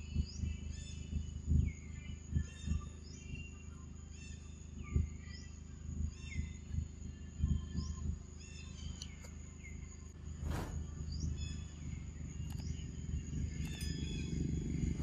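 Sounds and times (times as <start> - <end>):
bird chirping: 0.0 - 15.0
high insect drone: 0.0 - 15.0
low rumble: 9.6 - 15.0.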